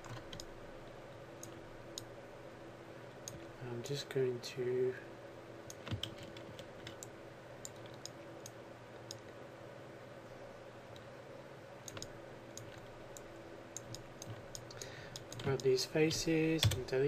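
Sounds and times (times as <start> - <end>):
low background hum: 0.0 - 17.0
mouse and keyboard clicks: 11.8 - 15.7.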